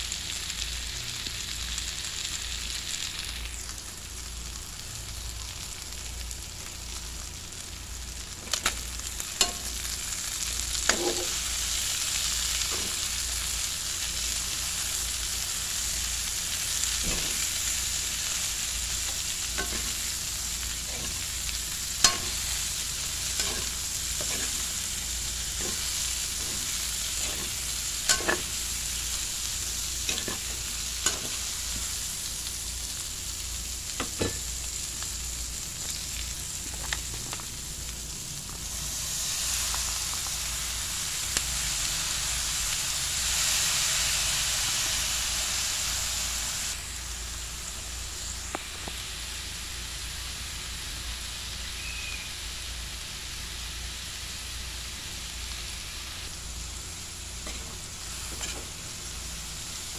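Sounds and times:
vegetables sizzling in a wok: 0.0s - 59.9s
spatula knocking and scraping pan: 19.6s - 20.0s, 23.4s - 24.6s, 25.6s - 28.5s, 57.4s - 58.7s.

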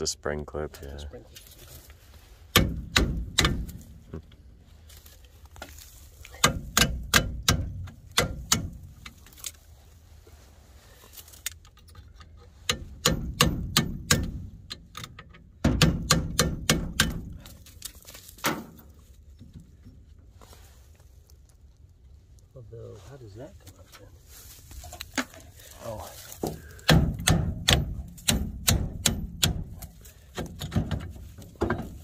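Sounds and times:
hammer striking metal: 2.5s - 3.7s, 6.4s - 8.8s, 12.7s - 14.4s, 26.9s - 29.7s.

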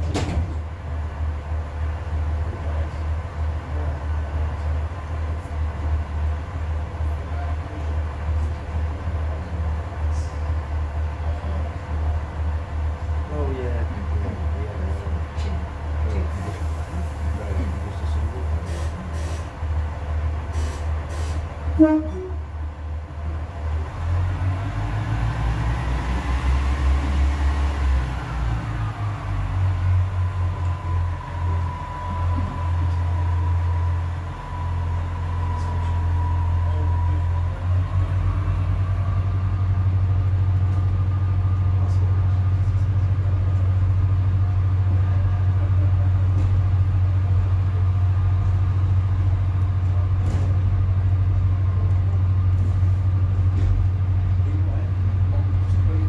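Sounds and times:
diesel train engine droning: 0.0s - 56.0s
faint engine whine: 0.1s - 56.0s
short loud tone: 21.8s - 22.4s.

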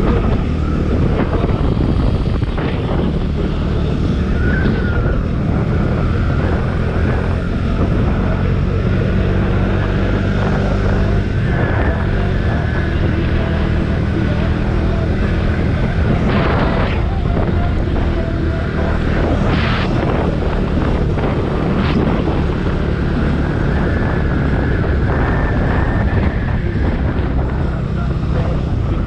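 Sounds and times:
motorcycle engine running: 0.0s - 29.0s
wind on microphone: 0.0s - 29.0s.

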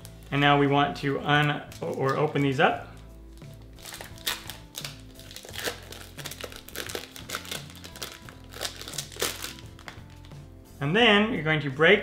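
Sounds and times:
wrappers crinkling: 1.2s - 10.4s.

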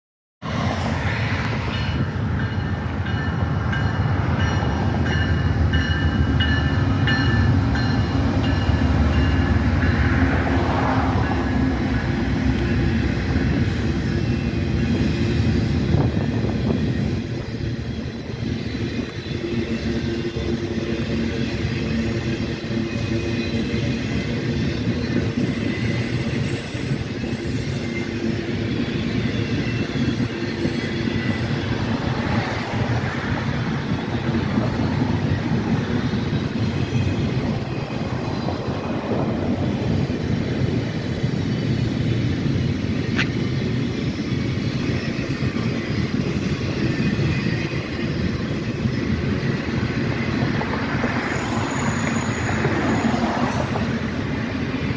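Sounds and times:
freight train wheels rumbling: 0.4s - 54.9s.

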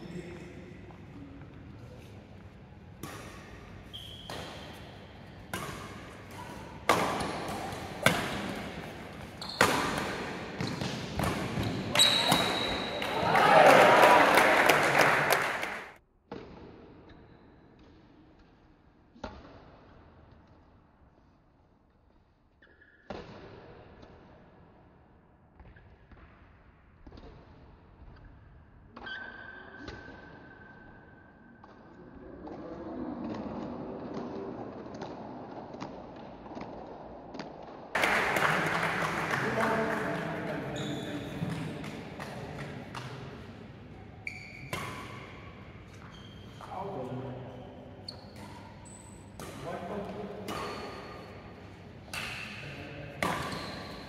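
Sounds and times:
badminton racket hitting shuttlecock: 3.0s - 13.0s, 48.3s - 54.0s.

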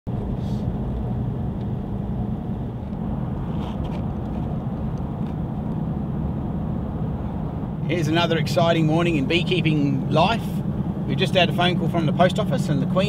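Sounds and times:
car engine and tyre rumble: 0.1s - 13.0s.

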